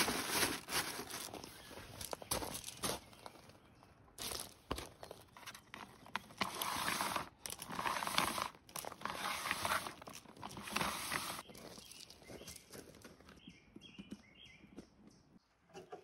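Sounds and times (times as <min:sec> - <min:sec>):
crinkling and rustling: 0:00.0 - 0:03.4, 0:04.2 - 0:13.2.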